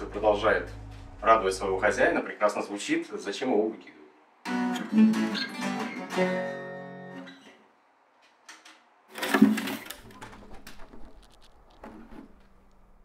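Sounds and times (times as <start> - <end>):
acoustic guitar chords strummed: 0.0 - 2.0, 4.5 - 7.3.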